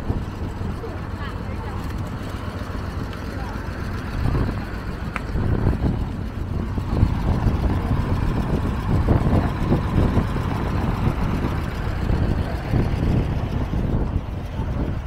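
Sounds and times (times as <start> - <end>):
low buffeting: 0.0 - 15.0
traffic engine rumble: 0.0 - 15.0.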